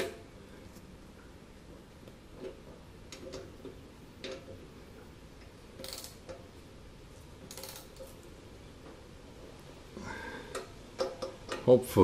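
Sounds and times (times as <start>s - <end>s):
ratchet wrench clicking: 5.8s - 6.4s, 7.5s - 8.1s.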